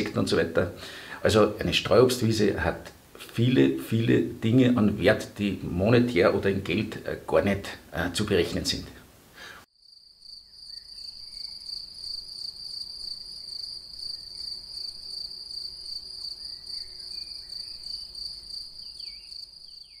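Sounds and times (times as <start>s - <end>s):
insects trilling: 9.8s - 20.0s.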